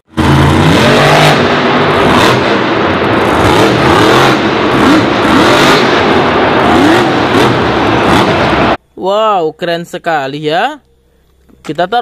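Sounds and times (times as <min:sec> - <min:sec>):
monster truck engine revving: 0:00.1 - 0:08.8.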